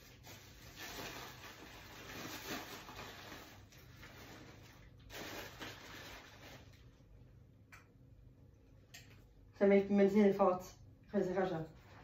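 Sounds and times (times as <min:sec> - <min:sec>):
clothes and bag rustling: 0:00.0 - 0:07.0.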